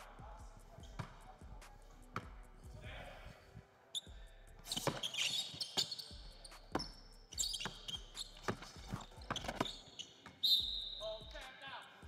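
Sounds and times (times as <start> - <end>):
sneaker squeaks on floor: 0.8 - 1.2, 3.9 - 11.6
basketball bouncing on hardwood: 6.1 - 9.8.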